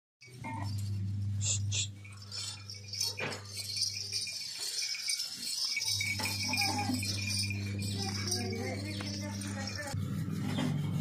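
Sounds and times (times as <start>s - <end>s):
beaded ornaments clinking: 0.2s - 10.0s
steady low hum: 0.2s - 11.0s.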